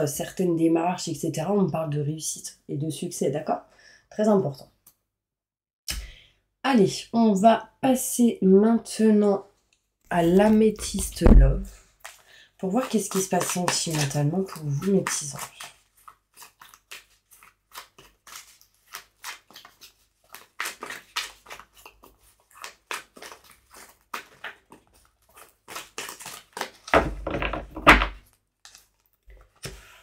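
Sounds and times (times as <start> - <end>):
cards being shuffled: 12.0 - 29.8.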